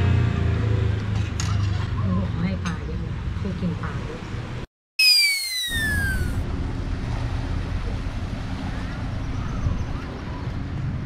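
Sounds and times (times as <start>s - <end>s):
falling whistle-like tone: 5.0s - 6.4s.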